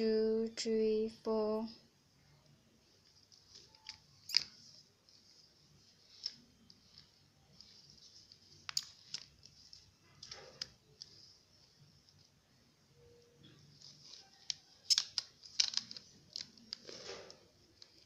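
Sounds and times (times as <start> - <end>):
faint plastic clicks: 13.2 - 18.0.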